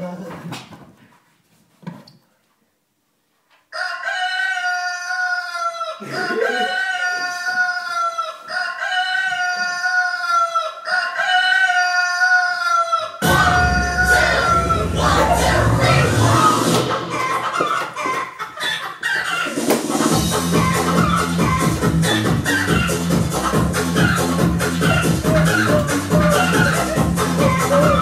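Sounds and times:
rooster crowing: 3.7s - 15.6s, 23.9s - 28.0s.

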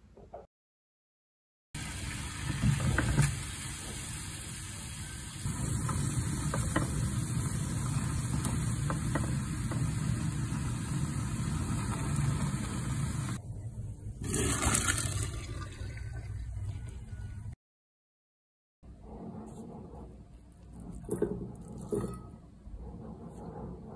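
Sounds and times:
water boiling in a pan: 1.8s - 13.4s.

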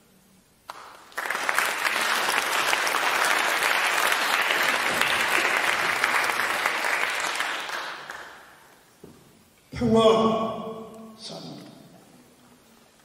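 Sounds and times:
audience applauding: 0.7s - 8.7s.

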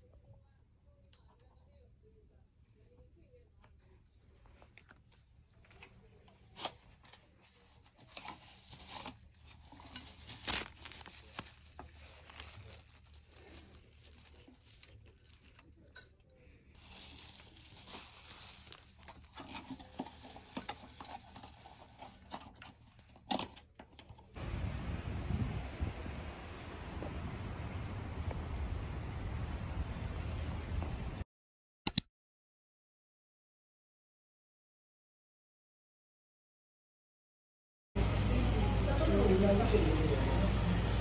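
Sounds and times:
towel and bottle rustling: 4.2s - 16.0s, 16.8s - 23.2s
low outdoor rumble: 24.0s - 31.2s.

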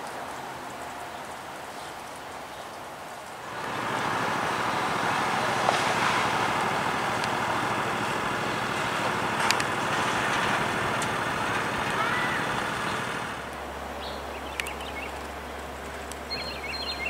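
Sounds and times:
road traffic noise: 0.0s - 17.0s
faint clicks: 5.6s - 13.6s, 14.5s - 16.4s.

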